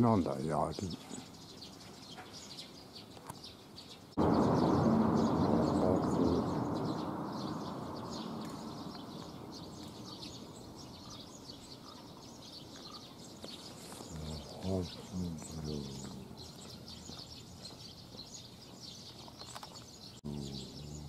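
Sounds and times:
small birds chirping: 0.0s - 21.0s
loud low rushing noise: 4.2s - 11.2s.

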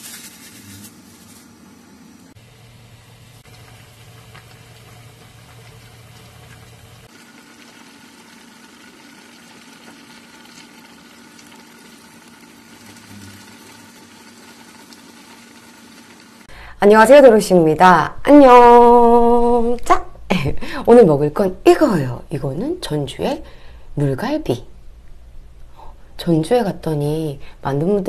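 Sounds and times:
stew boiling with bubbling hiss: 0.0s - 17.1s.

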